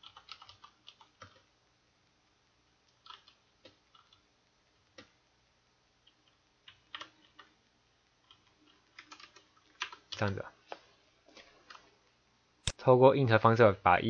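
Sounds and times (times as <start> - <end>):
faint keyboard keystrokes: 8.3 - 11.9.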